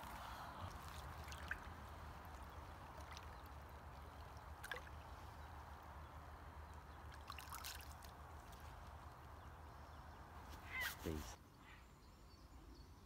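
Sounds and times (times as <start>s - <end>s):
small splashes and clicks: 0.0s - 5.1s, 6.7s - 9.2s
faint water lapping and gurgling: 0.0s - 10.4s.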